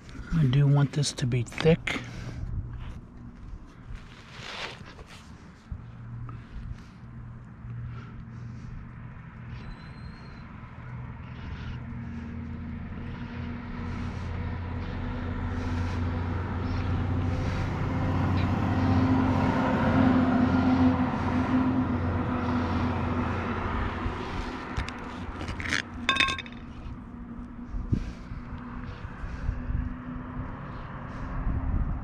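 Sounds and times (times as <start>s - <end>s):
motor vehicle engine passing: 10.5s - 25.2s
metallic clinks of can lid: 26.1s - 26.6s.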